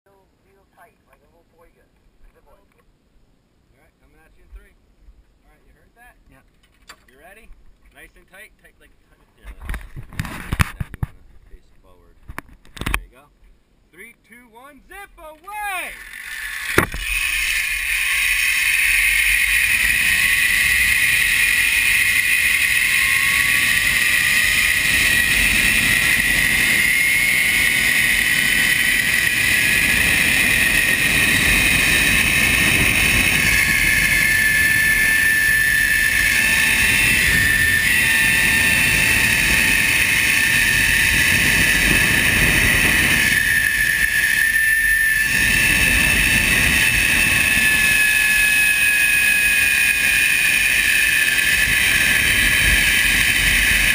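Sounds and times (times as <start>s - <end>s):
sharp click: 15.3s - 17.1s
zipline pulleys whining on cable: 15.6s - 53.9s
wind on microphone: 16.7s - 53.9s.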